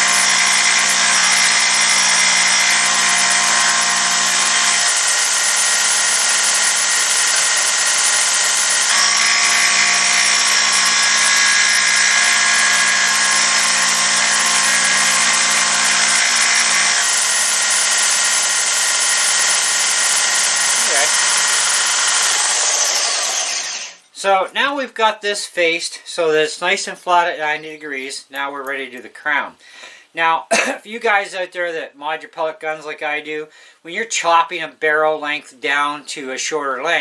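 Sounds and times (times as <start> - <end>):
sander motor hum: 0.0 - 24.0.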